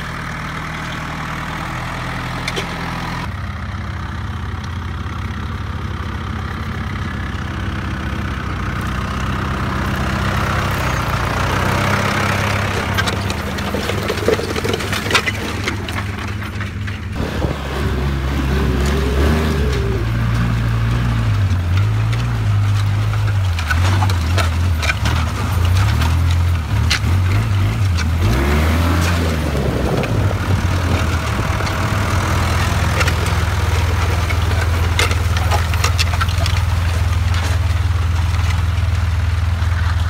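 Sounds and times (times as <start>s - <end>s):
tractor diesel engine running: 0.0s - 40.0s
clanks and rattles: 8.7s - 40.0s.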